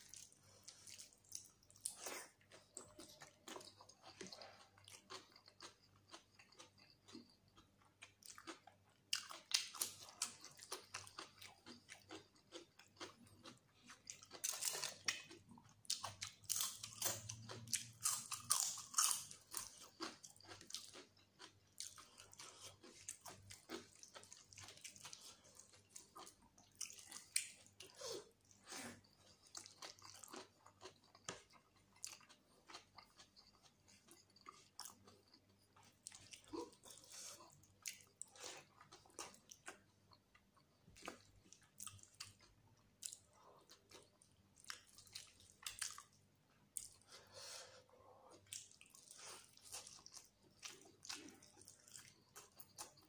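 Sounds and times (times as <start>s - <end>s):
wet chewing: 48.3s - 53.0s.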